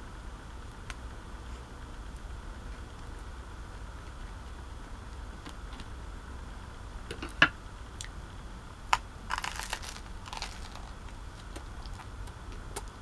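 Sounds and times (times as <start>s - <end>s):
crunch of bread crust: 8.9s - 13.0s.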